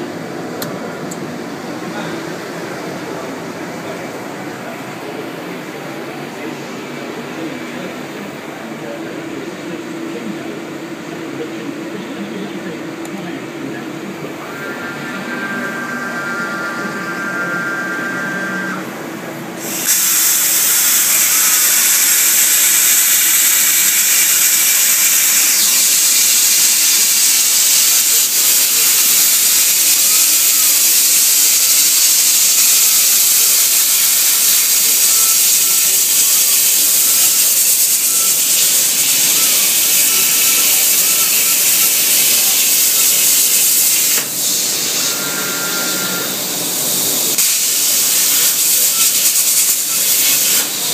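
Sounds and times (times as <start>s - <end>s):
machine high whine: 0.0s - 50.9s
plasma arc hissing: 19.6s - 50.9s.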